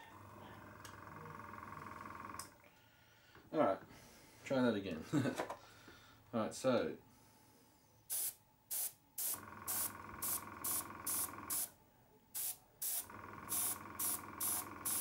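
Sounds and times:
air compressor humming: 0:00.0 - 0:02.6, 0:08.1 - 0:11.8, 0:12.4 - 0:15.0
airbrush hissing bursts: 0:08.1 - 0:11.7, 0:12.4 - 0:15.0.

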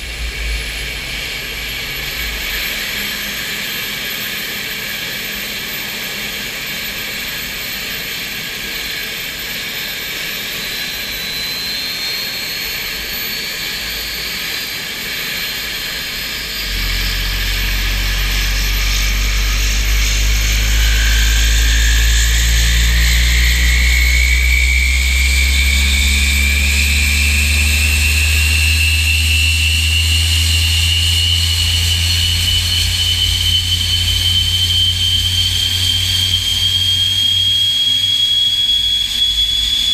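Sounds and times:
deep engine rumble: 0:00.0 - 0:02.8, 0:16.6 - 0:37.7
jet engine starting whine: 0:00.0 - 0:39.9.

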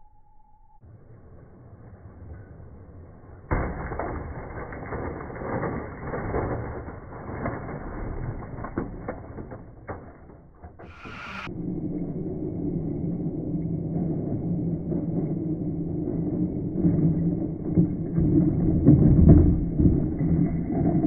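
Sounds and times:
model train crash impact: 0:03.2 - 0:11.5
plastic clattering and cracking: 0:03.4 - 0:11.5.

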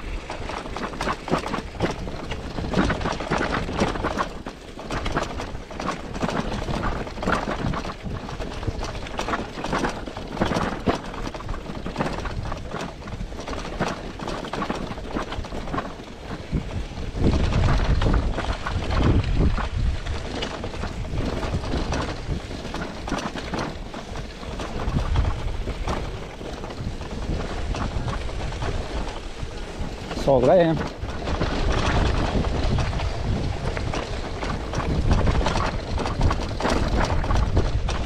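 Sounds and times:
bicycle tyre rumble: 0:00.0 - 0:38.0
bike rattling and knocking: 0:00.0 - 0:38.0
wind buffeting microphone: 0:00.0 - 0:38.0.

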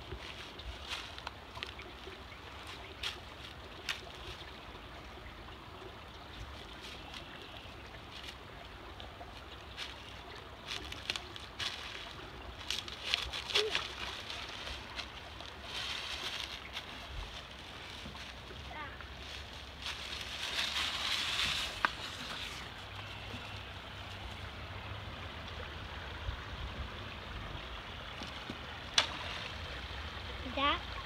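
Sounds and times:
footsteps crunching dry leaves: 0:00.0 - 0:01.9, 0:02.6 - 0:04.4, 0:09.7 - 0:24.3.

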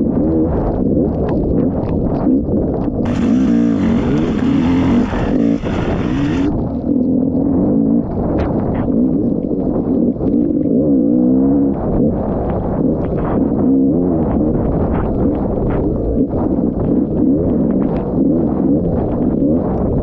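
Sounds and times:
dirt bike engine revving: 0:03.0 - 0:06.6.

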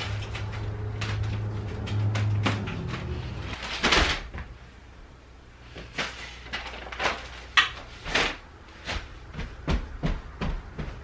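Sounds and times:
plastic rustling and scuffing: 0:05.7 - 0:09.8.

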